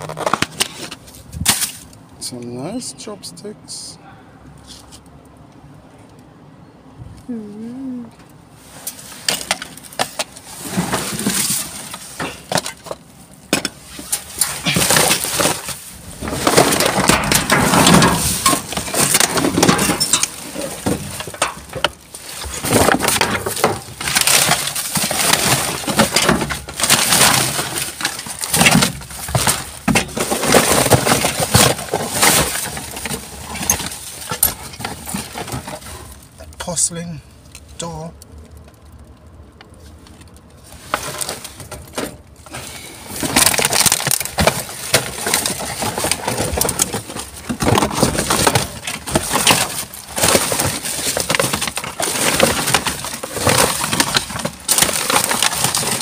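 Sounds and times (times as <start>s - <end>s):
objects clattering and clinking: 9.2s - 36.4s, 40.7s - 56.0s.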